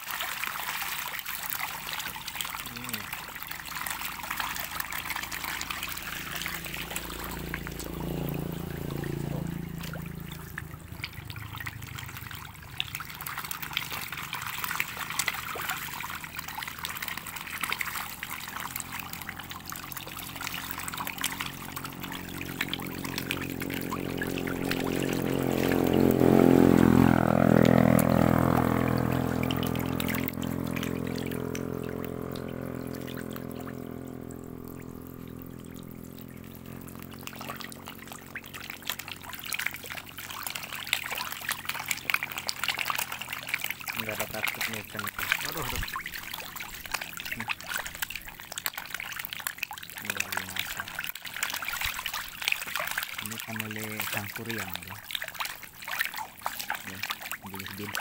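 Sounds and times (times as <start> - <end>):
fish splashing at water surface: 0.0 - 58.0
low droning hum: 2.0 - 43.9.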